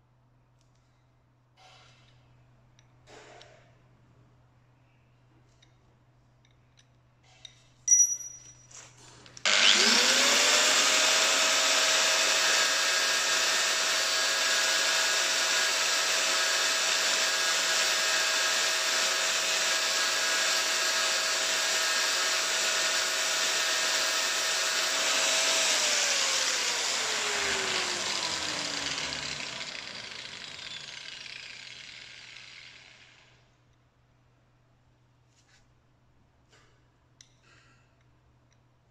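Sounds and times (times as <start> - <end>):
angle grinder grinding steel: 9.4 - 33.3.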